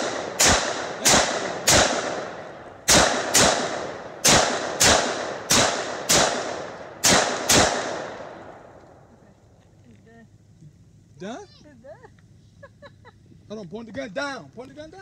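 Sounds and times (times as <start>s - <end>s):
rifle shots with echo: 0.0s - 8.8s.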